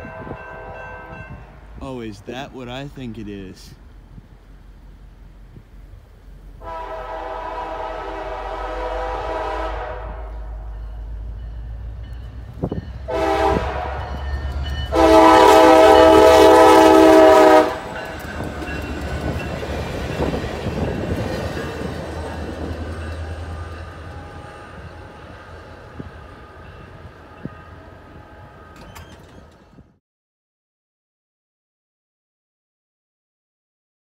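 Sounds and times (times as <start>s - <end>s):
locomotive horn blasts: 0.0s - 1.4s, 6.6s - 10.7s, 13.0s - 18.0s
train running past: 0.0s - 30.0s.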